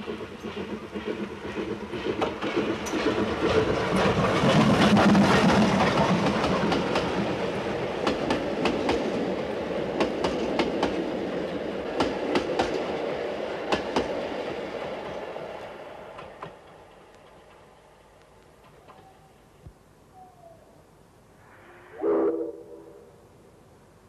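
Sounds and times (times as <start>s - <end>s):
steam locomotive running: 0.0s - 19.1s
train wheels clicking over rail joints: 0.0s - 19.2s.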